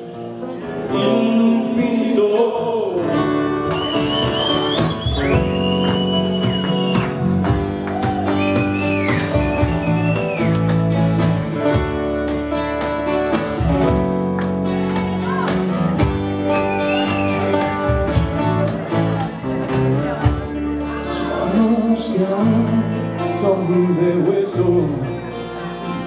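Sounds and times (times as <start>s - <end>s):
acoustic guitars: 0.0s - 26.0s
electric bass: 0.0s - 26.0s
cajon drumming: 4.1s - 20.5s.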